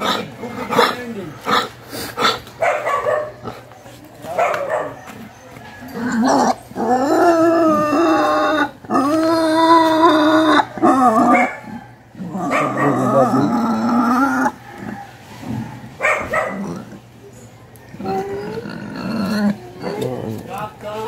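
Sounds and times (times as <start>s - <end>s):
animal crying: 4.8s - 20.6s.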